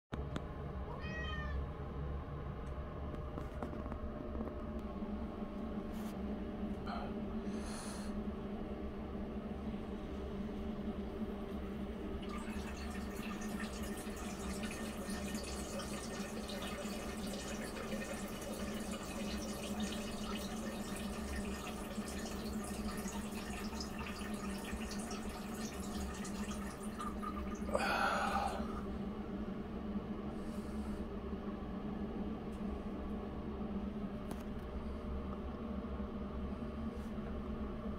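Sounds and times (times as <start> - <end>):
background hum: 0.2 - 37.9
person urinating into toilet: 12.2 - 28.8.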